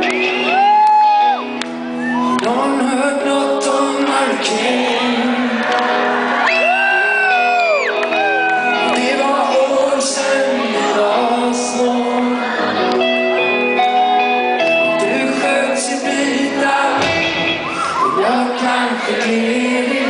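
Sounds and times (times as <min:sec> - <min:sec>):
electric guitar: 0:00.0 - 0:20.0
live rock band: 0:00.0 - 0:20.0
man singing: 0:02.2 - 0:06.0, 0:08.6 - 0:12.7, 0:14.8 - 0:20.0.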